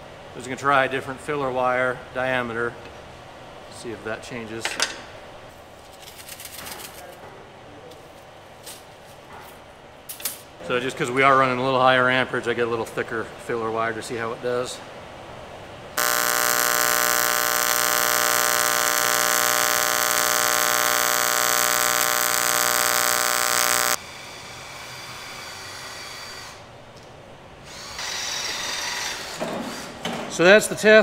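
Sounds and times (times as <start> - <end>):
faint hum and hiss: 0.0 - 31.0
welding arc buzzing: 16.0 - 24.0.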